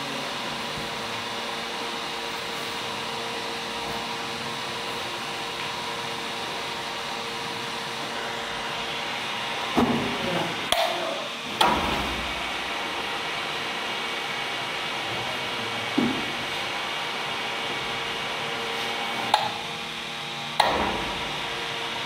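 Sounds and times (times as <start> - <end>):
conveyor mechanical hum: 0.0 - 22.0.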